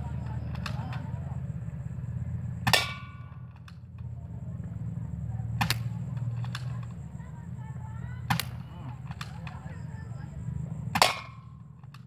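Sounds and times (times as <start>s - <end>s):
short metallic ring: 2.7s - 3.5s
airsoft rifle firing sharp snaps: 5.6s - 6.8s, 8.3s - 9.5s.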